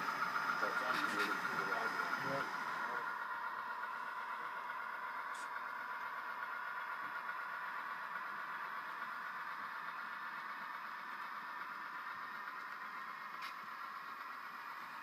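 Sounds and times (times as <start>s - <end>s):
faint voices murmuring: 0.6s - 3.1s.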